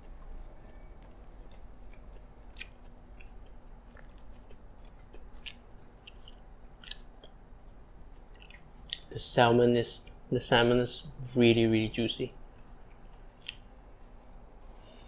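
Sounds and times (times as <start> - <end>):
person chewing food: 0.0 - 9.1, 12.4 - 15.0.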